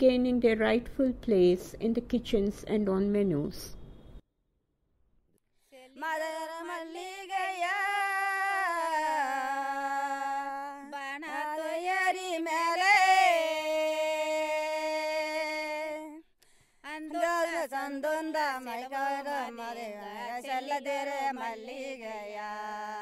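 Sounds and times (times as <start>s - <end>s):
woman singing unaccompanied: 5.7s - 16.2s, 16.8s - 23.0s.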